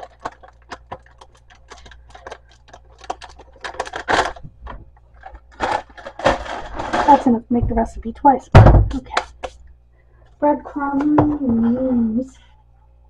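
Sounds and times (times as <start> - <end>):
plastic bag crinkling: 0.0 - 7.3
plastic bag rustle: 0.0 - 7.4.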